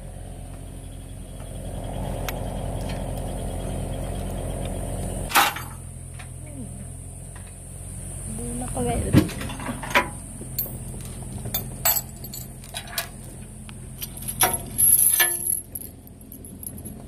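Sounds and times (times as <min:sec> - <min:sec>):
excavator diesel engine idling: 0:00.0 - 0:14.9
metal hook clinking on shackle: 0:10.6 - 0:10.9, 0:11.5 - 0:13.1, 0:14.0 - 0:17.0.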